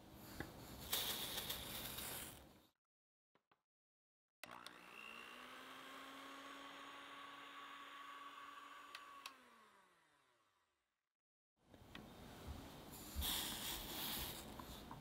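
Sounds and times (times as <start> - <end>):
electric hand mixer whirring: 4.4 - 10.6.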